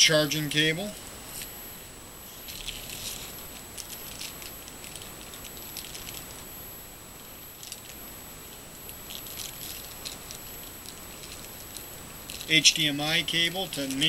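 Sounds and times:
high-pitched whine: 0:00.0 - 0:14.0
plastic bag crinkling: 0:02.3 - 0:06.5, 0:07.5 - 0:14.0.

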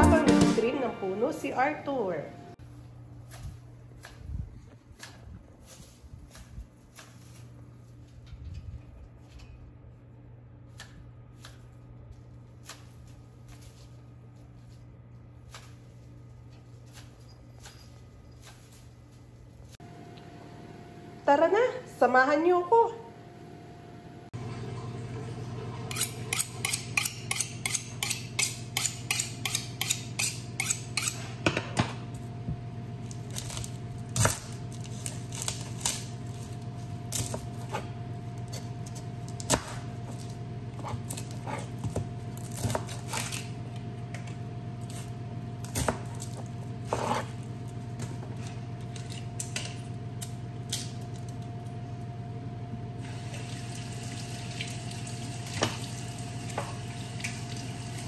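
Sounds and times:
steady low hum: 0:00.0 - 0:57.9
knife cutting onion: 0:25.9 - 0:31.4, 0:33.1 - 0:43.7, 0:44.8 - 0:47.5
knife scraping on honing steel: 0:25.9 - 0:31.4.

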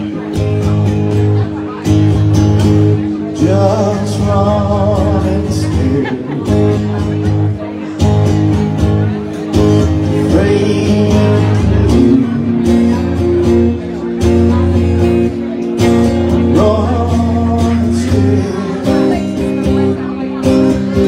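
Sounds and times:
electric guitar through amplifier: 0:00.0 - 0:21.0
steady bass line: 0:00.0 - 0:21.0
man singing into microphone: 0:03.0 - 0:06.8, 0:09.6 - 0:13.8, 0:16.3 - 0:21.0.

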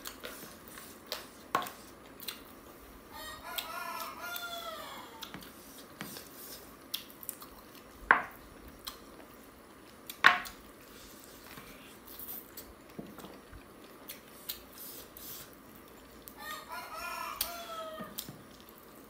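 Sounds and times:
fingers squishing food: 0:00.0 - 0:02.6, 0:11.7 - 0:16.5.

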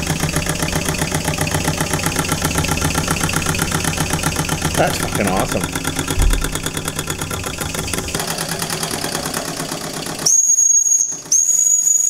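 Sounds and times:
steam engine chuffing and hissing: 0:00.0 - 0:11.8
high steam whistle: 0:10.2 - 0:12.0.

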